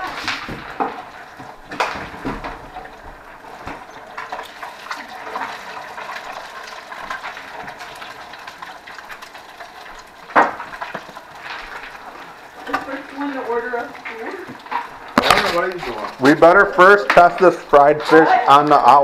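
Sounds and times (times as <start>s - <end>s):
oil sizzling and crackling: 0.0s - 19.0s.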